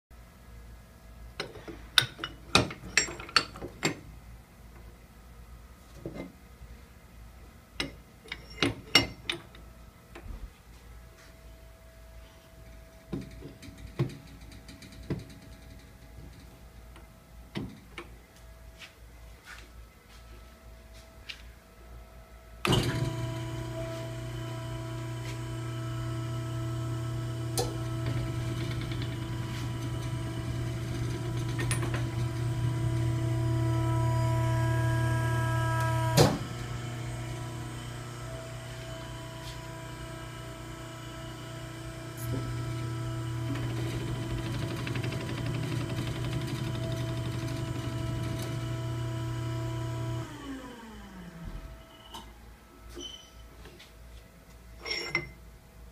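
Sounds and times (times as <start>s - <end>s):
electric motor humming: 22.7s - 51.4s.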